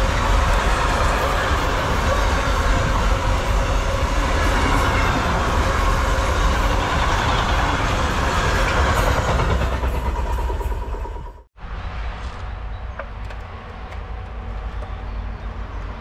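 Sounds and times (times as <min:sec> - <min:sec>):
train wheels rolling on rails: 0:00.0 - 0:16.0.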